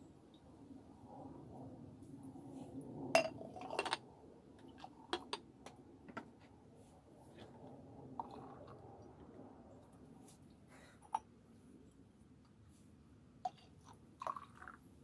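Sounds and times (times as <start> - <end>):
glass jars clinking: 3.2 - 4.0.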